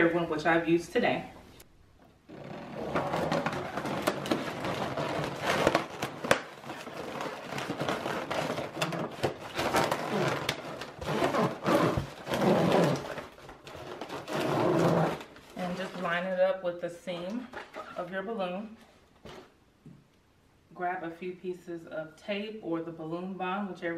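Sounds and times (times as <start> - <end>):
balloon being stretched: 2.2 - 16.1
foil balloon crinkling: 2.2 - 16.4.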